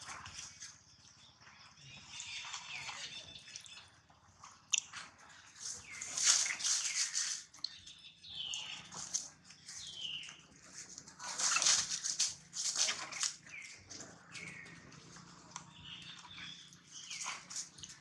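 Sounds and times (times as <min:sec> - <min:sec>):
scuffling through dry leaves: 0:10.9 - 0:13.4.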